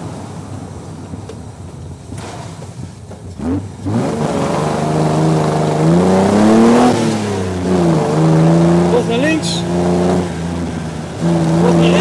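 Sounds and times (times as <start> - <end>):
car engine accelerating hard: 3.2 - 12.0.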